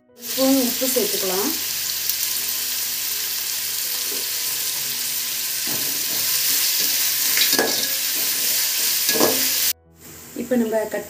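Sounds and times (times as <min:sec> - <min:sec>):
onions sizzling in oil: 0:00.2 - 0:09.8
metal spatula scraping a pot: 0:03.4 - 0:09.7.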